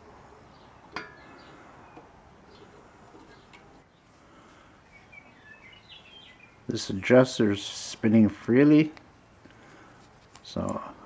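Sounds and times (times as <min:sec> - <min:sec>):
bird chirps: 0:04.8 - 0:06.7.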